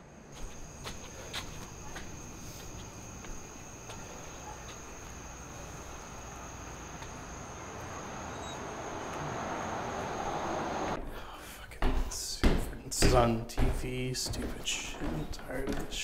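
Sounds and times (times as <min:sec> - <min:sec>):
crickets trilling: 0:00.3 - 0:11.0.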